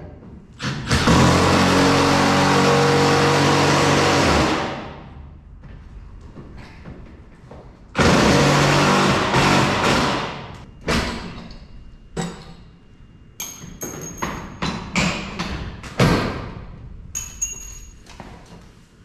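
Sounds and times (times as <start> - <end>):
metal track knocking and ringing: 13.4 - 15.6, 17.1 - 18.2.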